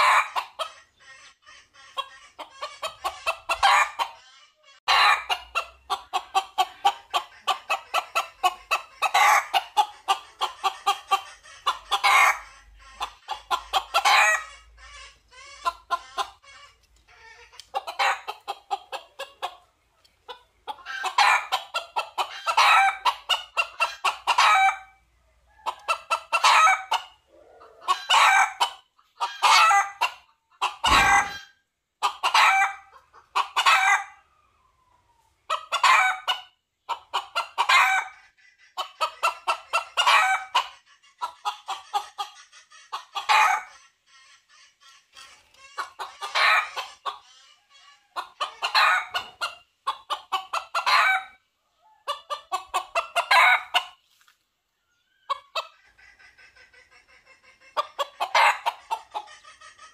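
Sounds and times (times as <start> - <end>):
rooster clucking and crowing: 0.0 - 19.7, 20.3 - 34.5, 35.5 - 43.8, 45.5 - 54.0, 54.9 - 59.9
low thump: 30.9 - 31.4.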